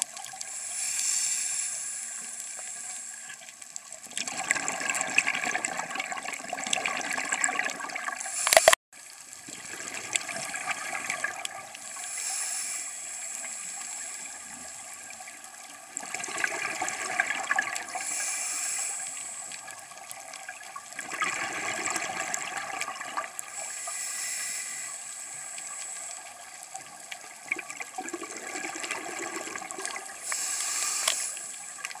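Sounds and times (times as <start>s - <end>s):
regulator inhale hiss: 0.4s - 3.6s, 8.2s - 8.8s, 11.8s - 14.8s, 17.9s - 19.8s, 23.5s - 26.7s, 30.1s - 32.0s
exhaled bubbles rushing: 4.1s - 8.3s, 9.4s - 11.8s, 15.9s - 18.0s, 20.5s - 23.4s, 27.3s - 30.2s.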